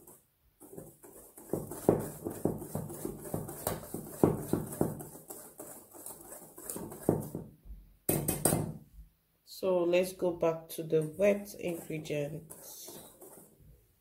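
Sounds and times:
whisk scraping metal bowl: 0.0 - 7.4, 10.8 - 13.8.

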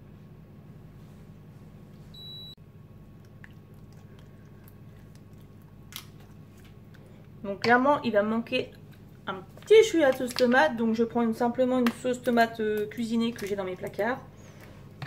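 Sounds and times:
steady low hum: 0.0 - 15.0
wet squishing of sauce: 3.0 - 7.4, 8.6 - 10.5.

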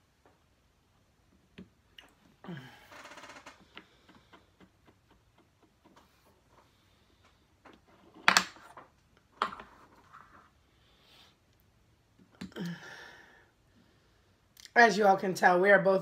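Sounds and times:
wooden blocks clicking and tapping: 3.6 - 6.2.

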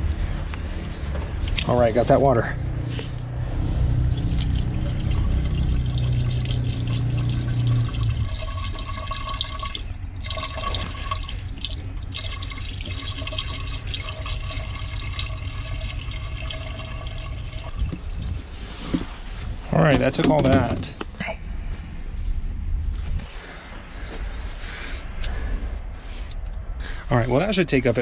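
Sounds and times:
low hum: 0.0 - 19.9, 20.9 - 28.0
water pouring from bottles: 4.1 - 18.5.

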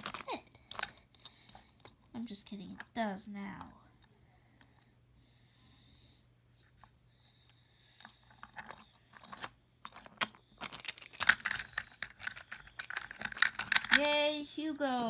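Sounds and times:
toy train clicking on wooden track: 10.0 - 14.2.

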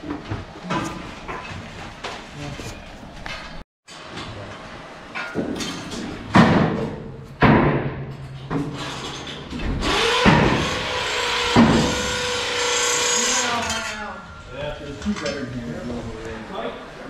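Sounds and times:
sharp metal knocks: 5.2 - 12.2
power drill whining: 9.8 - 13.8.

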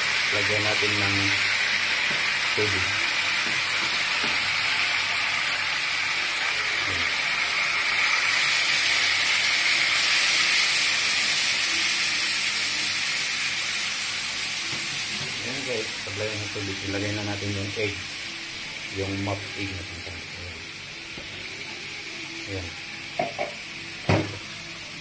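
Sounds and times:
water hissing in a hot wok: 0.0 - 25.0.

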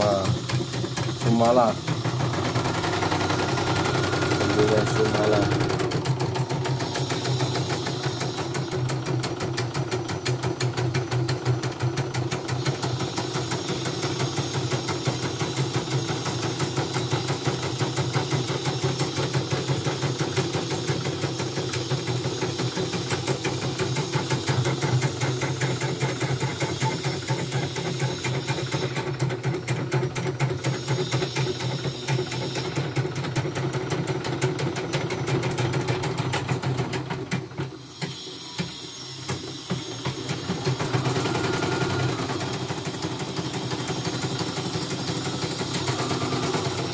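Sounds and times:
embroidery machine stitching: 0.0 - 46.9.

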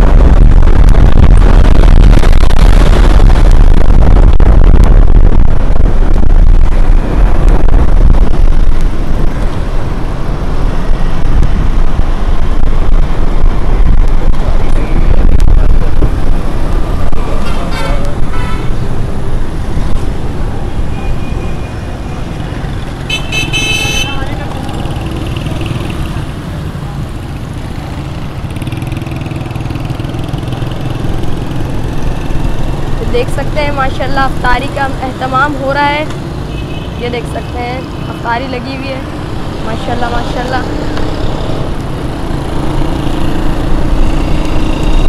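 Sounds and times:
wind rush: 0.0 - 36.4
passing motorcycles and cars: 0.0 - 45.0
road noise: 0.0 - 45.0
vehicle horn honking: 17.4 - 18.7, 23.1 - 24.4.

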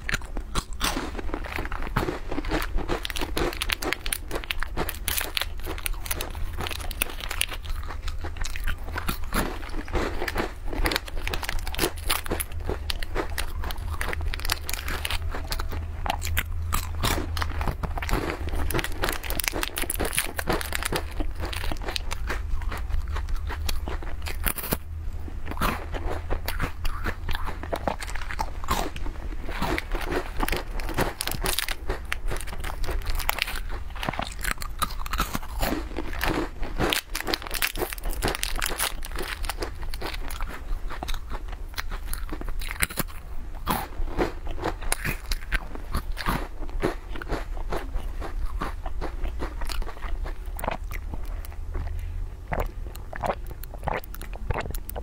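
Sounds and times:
crunching crisp biscuits: 0.0 - 55.0.

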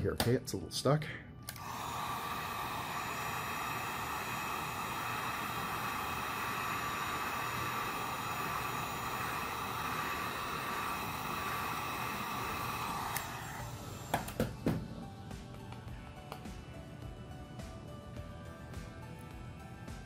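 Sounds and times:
heat gun blowing air: 1.5 - 14.8.

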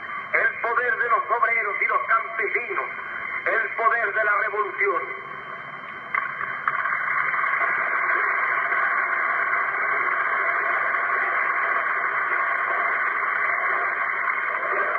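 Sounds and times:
crowd applauding and cheering: 6.2 - 14.9.

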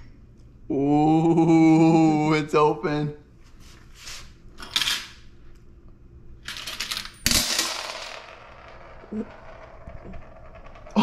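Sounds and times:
coins spilling and clinking: 6.5 - 8.4.

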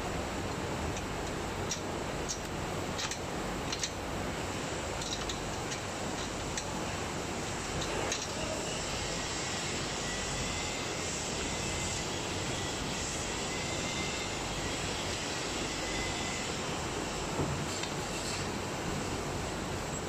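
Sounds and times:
faint high whine: 6.9 - 20.0.

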